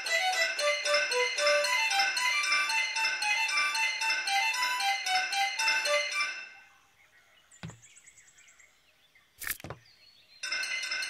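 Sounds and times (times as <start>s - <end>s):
bell-like music notes: 0.0s - 6.7s.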